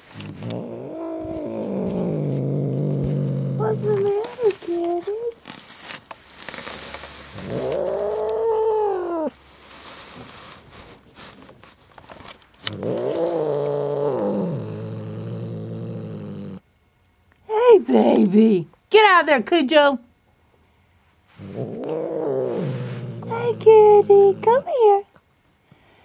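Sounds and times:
rustling and scratching: 0.0 - 13.4, 21.2 - 25.0.

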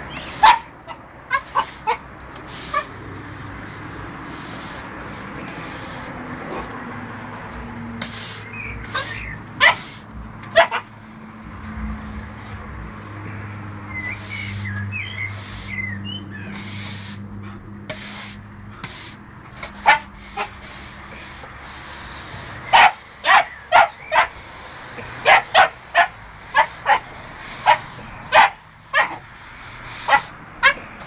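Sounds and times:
broom bristles scraping paving: 0.0 - 31.0
puppy barking: 0.4 - 2.0, 8.9 - 9.9, 10.5 - 10.9, 19.8 - 20.5, 22.7 - 24.4, 25.2 - 29.3, 30.0 - 30.8.

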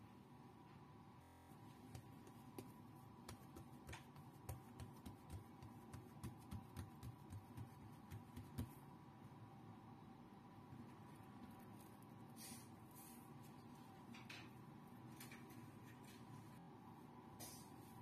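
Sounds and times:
faint steady hum: 0.0 - 18.0
fingers patting dough: 1.6 - 8.8.

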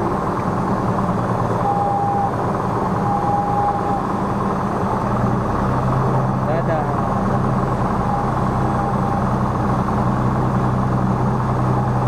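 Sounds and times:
aircraft engine and propeller: 0.0 - 12.0
steady beeps: 1.6 - 2.4, 3.0 - 4.0, 7.9 - 9.4.

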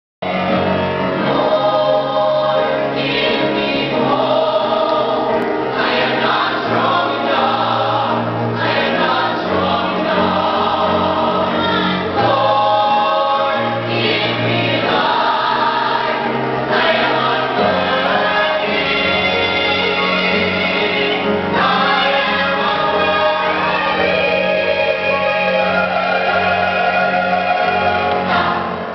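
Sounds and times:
choir singing: 0.2 - 28.9.

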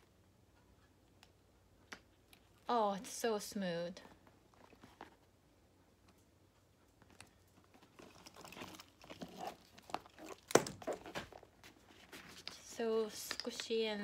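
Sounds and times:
leather bag rustling: 7.1 - 12.6.

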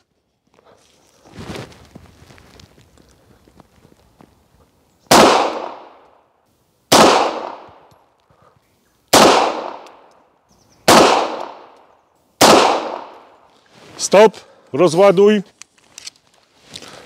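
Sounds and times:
pistol shots ringing out: 5.1 - 6.0, 6.9 - 7.9, 9.1 - 10.1, 10.8 - 11.8, 12.4 - 13.3.

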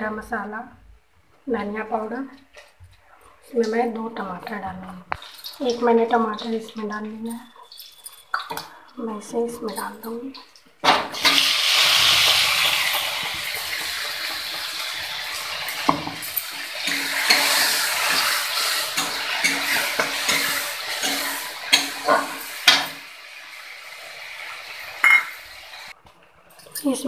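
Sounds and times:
metal spatula stirring and scraping: 3.3 - 23.0
paste sizzling in hot oil: 9.7 - 26.0.

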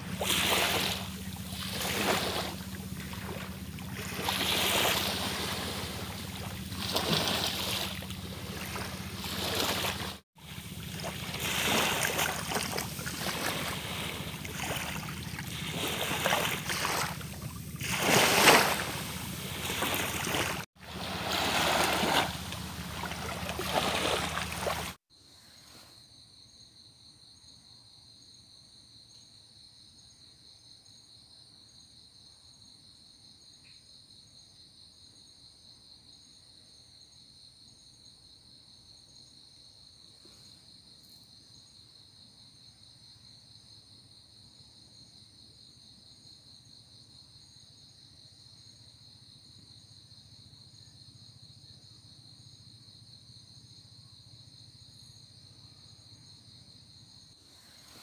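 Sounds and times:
faint low rumble: 0.0 - 24.9
insects trilling: 0.0 - 26.7.

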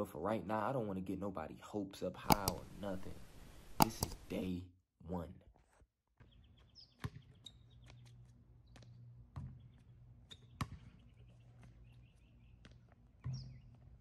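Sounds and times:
basketball bouncing on concrete: 2.3 - 4.4, 6.2 - 14.0.

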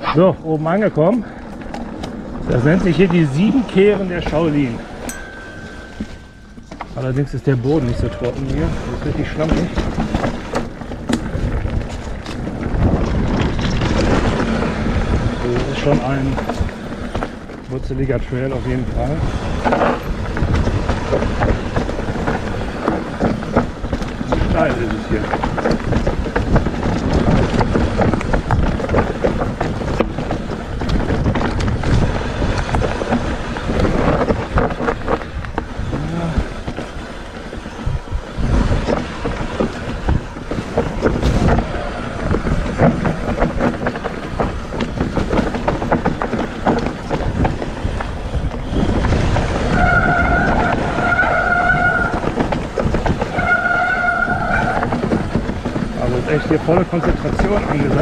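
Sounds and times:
tyres rumbling over roots: 0.0 - 58.0
bike rattling and knocking: 0.2 - 58.0.

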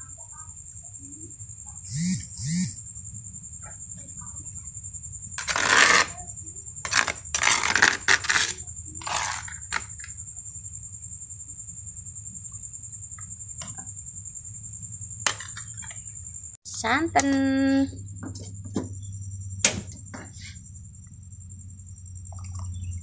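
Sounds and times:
faint high whine: 0.0 - 3.3
steady low hum: 1.3 - 23.0.

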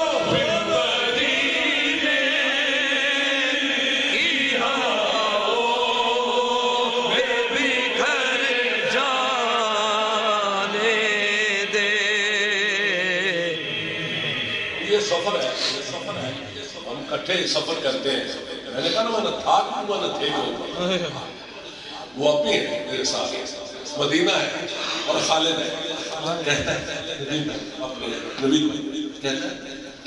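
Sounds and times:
man chanting with vibrato: 0.0 - 17.0, 18.7 - 19.4.

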